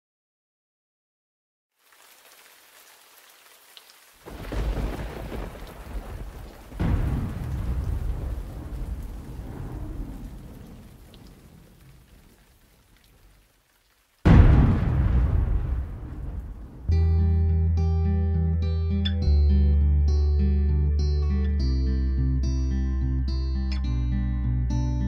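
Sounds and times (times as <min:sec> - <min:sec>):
rain hissing: 0:01.7 - 0:17.0
thunder rolling: 0:04.3 - 0:13.0, 0:14.3 - 0:17.0.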